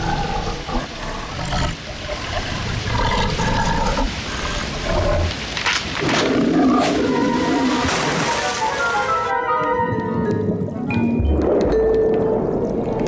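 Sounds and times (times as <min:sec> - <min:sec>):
big cat growling and roaring: 0:00.0 - 0:05.4, 0:06.0 - 0:07.9.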